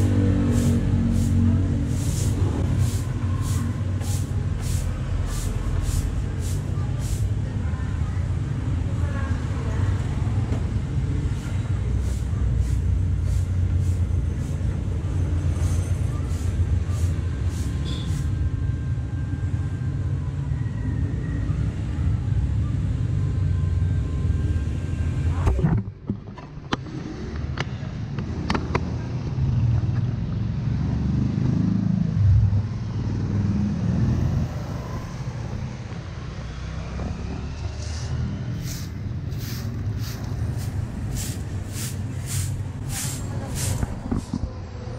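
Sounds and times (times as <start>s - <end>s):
broom scraping on concrete: 0.0s - 7.4s, 11.3s - 14.8s, 15.5s - 18.4s, 37.8s - 44.4s
street traffic rumble: 0.0s - 44.9s.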